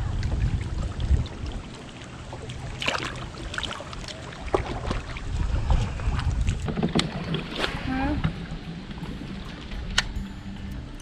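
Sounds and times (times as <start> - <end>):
water splashes: 0.0 - 10.2
wind rumbling on microphone: 0.0 - 11.0.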